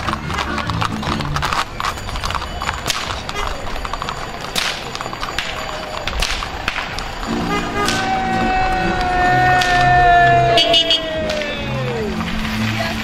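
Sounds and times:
outdoor background noise: 0:00.0 - 0:13.0
sharp cracks and knocks: 0:05.4 - 0:07.1.

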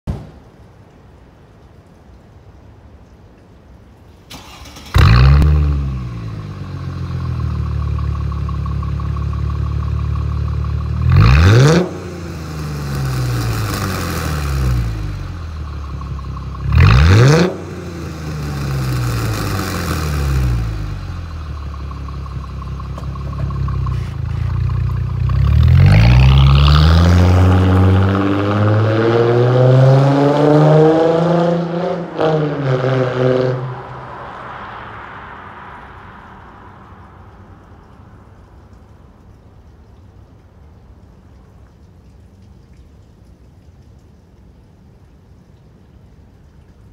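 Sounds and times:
car engine revving and idling: 0:04.4 - 0:38.2.

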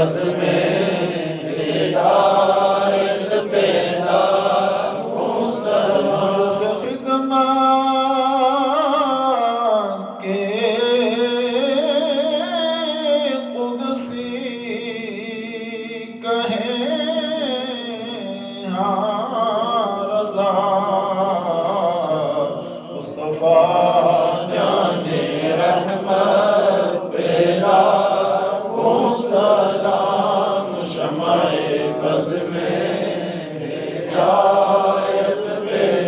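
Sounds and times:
men chanting: 0:00.0 - 0:07.9, 0:19.7 - 0:36.0.

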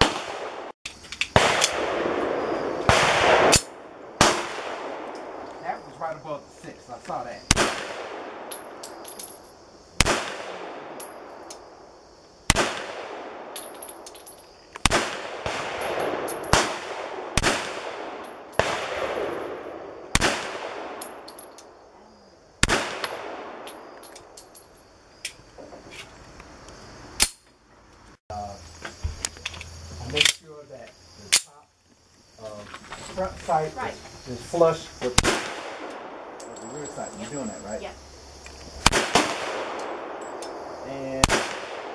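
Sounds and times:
pistol shots echoing: 0:00.0 - 0:00.7, 0:01.3 - 0:05.4, 0:07.5 - 0:09.0, 0:10.0 - 0:11.7, 0:12.5 - 0:14.0, 0:14.8 - 0:21.4, 0:22.6 - 0:24.0, 0:35.1 - 0:36.6, 0:38.8 - 0:41.9.

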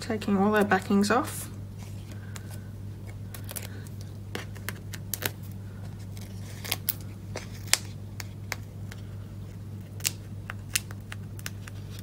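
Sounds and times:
steady low hum: 0:00.0 - 0:12.0
paper peeling clicks and ticks: 0:09.8 - 0:12.0.

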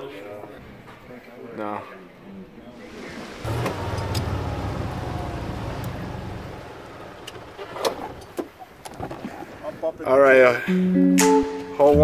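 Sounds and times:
golf cart driving: 0:02.7 - 0:09.6.

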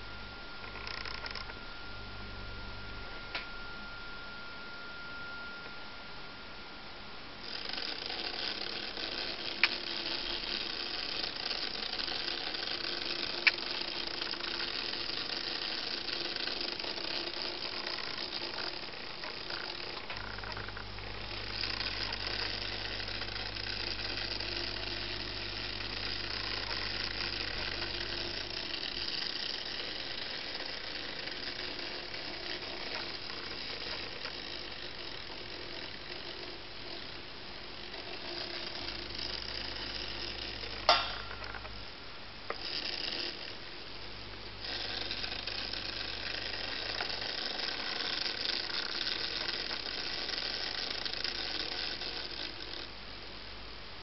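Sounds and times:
toy motor buzzing: 0:00.6 - 0:01.6, 0:07.4 - 0:41.7, 0:42.5 - 0:53.0
sharp click: 0:40.9 - 0:41.7.

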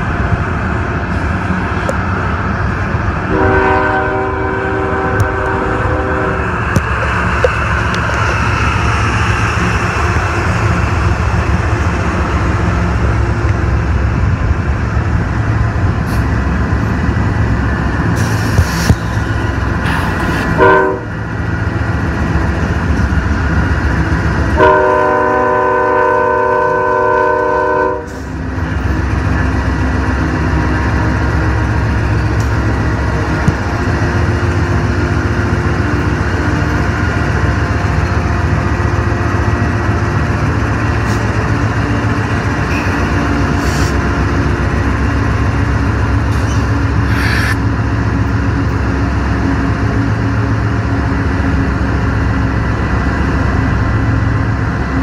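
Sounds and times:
diesel locomotives rumbling past: 0:00.0 - 0:55.0
locomotive horn: 0:03.2 - 0:06.5, 0:20.4 - 0:21.2, 0:24.5 - 0:28.3.

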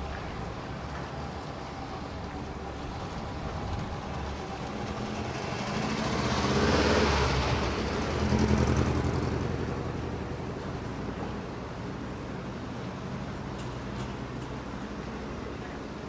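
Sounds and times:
car driving past: 0:03.6 - 0:10.7.

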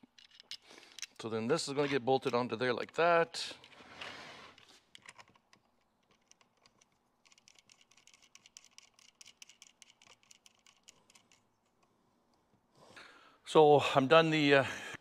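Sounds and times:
small parts clicking: 0:00.0 - 0:01.2, 0:04.6 - 0:11.9.

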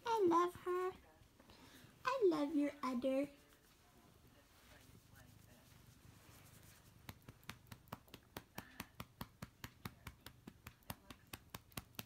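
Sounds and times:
hand patting cat: 0:06.5 - 0:12.0.

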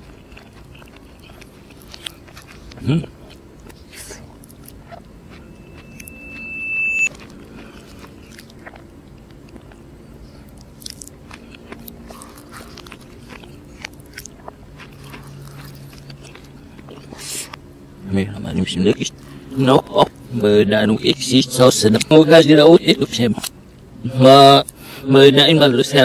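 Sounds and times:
soft chewing: 0:00.0 - 0:17.8
steady high tone: 0:04.9 - 0:07.2.

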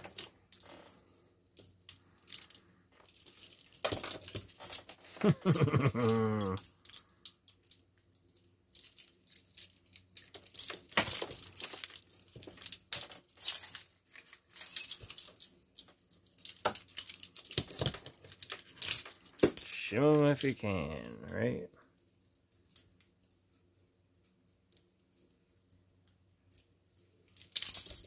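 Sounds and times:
handcuffs clinking and jangling: 0:00.0 - 0:28.0
whining vocal sound: 0:05.4 - 0:06.7.

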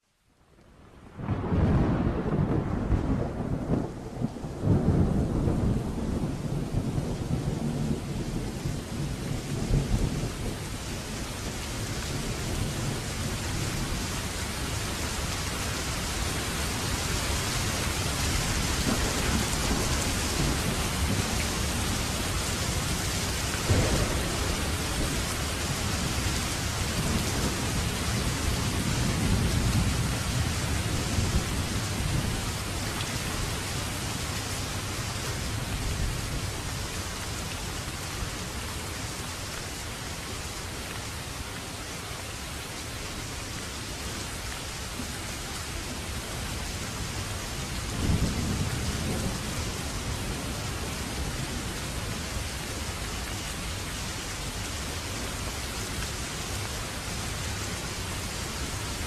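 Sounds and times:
heavy rain: 0:00.0 - 0:59.0
low rumbling thunder: 0:01.1 - 0:10.9, 0:23.6 - 0:32.6, 0:47.7 - 0:52.0
sharp thunder crack: 0:23.7 - 0:25.2.

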